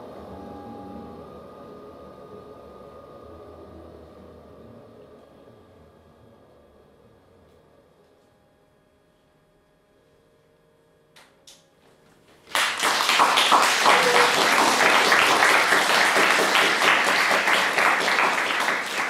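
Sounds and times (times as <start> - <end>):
faint steady hum: 0.0 - 19.0
audience applauding: 12.5 - 19.0.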